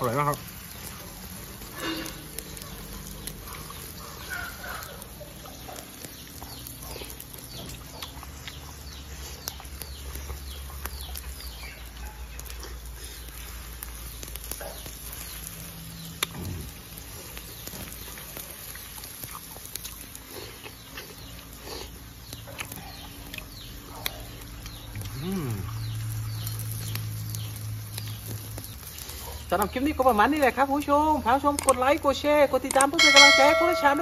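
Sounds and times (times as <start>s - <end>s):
person chewing and smacking: 0.8s - 15.4s, 16.1s - 27.0s, 30.8s - 31.8s, 32.6s - 33.0s.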